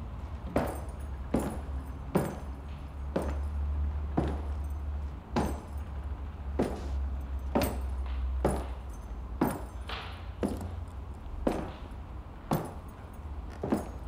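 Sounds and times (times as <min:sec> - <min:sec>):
footsteps on wooden floor: 0:00.4 - 0:03.6, 0:04.2 - 0:04.7, 0:06.5 - 0:10.8, 0:11.4 - 0:11.9, 0:13.5 - 0:14.0.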